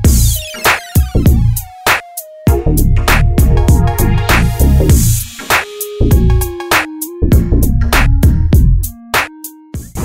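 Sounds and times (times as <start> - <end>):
electronic music with drum beat: 0.0 - 10.0
deep bass hits: 2.5 - 5.2.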